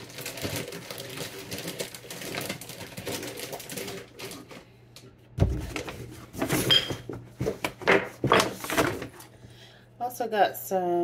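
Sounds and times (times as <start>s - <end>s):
paper bag rustling: 0.0s - 4.7s.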